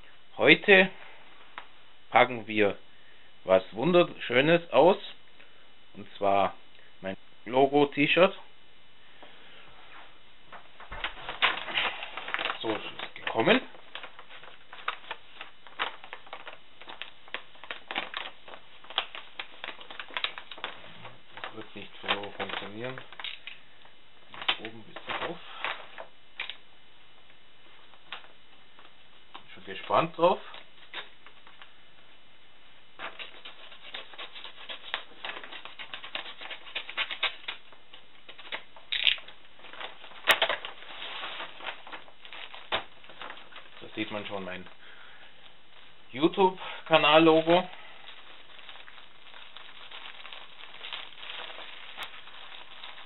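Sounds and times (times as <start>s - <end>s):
plastic wrap rustling: 10.6s - 26.7s, 32.9s - 53.0s
paper envelope crinkling: 10.8s - 26.6s, 33.0s - 44.8s, 46.9s - 53.0s.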